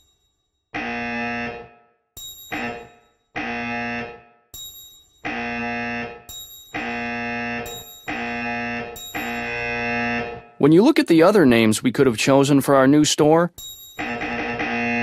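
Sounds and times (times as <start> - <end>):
harsh low buzzer: 0.8 - 1.8, 2.5 - 4.4, 5.3 - 10.6, 14.0 - 15.0
high bell ding: 2.2 - 3.2, 4.6 - 5.3, 6.3 - 7.1, 7.7 - 8.4, 9.0 - 9.7, 13.5 - 14.4.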